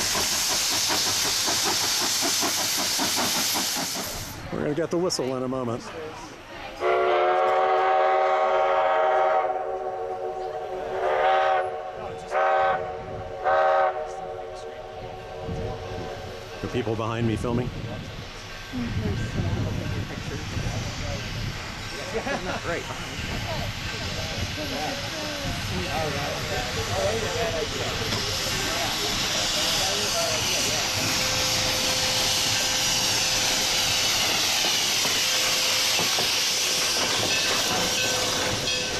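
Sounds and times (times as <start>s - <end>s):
steam locomotive hissing: 0.0s - 4.7s, 6.2s - 38.9s
steam locomotive whistle blasts: 6.8s - 14.6s.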